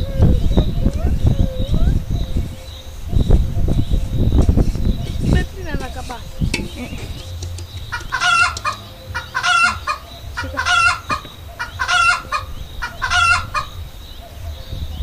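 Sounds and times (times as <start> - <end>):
chicken calling: 7.9 - 14.8.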